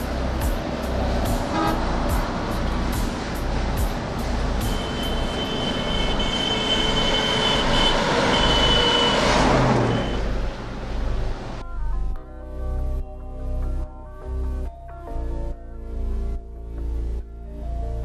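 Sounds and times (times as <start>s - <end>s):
bus passing at speed: 0.0s - 12.1s
high steady tone: 4.6s - 9.2s.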